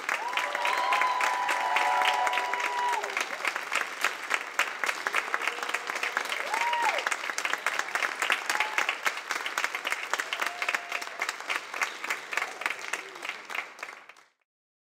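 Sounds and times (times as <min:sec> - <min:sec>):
audience applauding: 0:00.0 - 0:14.4
crowd calling out: 0:00.2 - 0:03.2.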